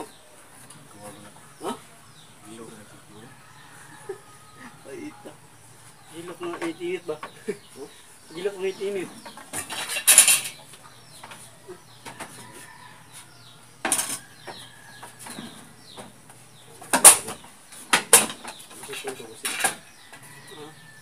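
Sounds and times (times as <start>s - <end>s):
wooden boards and tools clattering: 9.0s - 12.5s, 13.8s - 16.2s, 16.8s - 20.3s.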